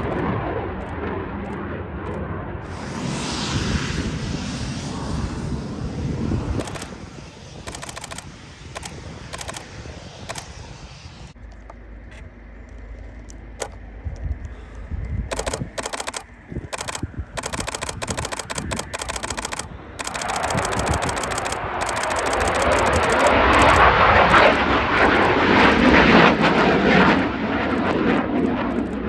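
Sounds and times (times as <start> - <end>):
jet aircraft rushing: 0.0 - 29.0
camera shutter rapid bursts: 6.6 - 9.7, 15.3 - 25.4.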